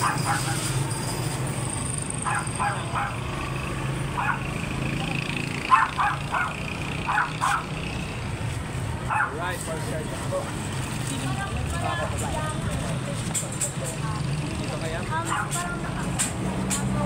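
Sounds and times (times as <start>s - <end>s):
small dog yapping: 0.0s - 0.7s, 2.2s - 3.2s, 4.2s - 4.4s, 5.7s - 7.7s, 9.1s - 9.4s, 15.2s - 15.6s.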